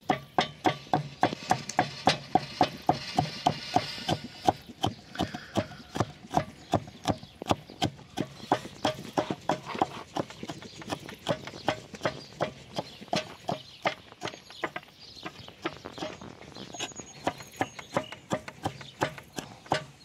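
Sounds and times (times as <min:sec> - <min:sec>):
knife chopping on wooden board: 0:16.8 - 0:20.0.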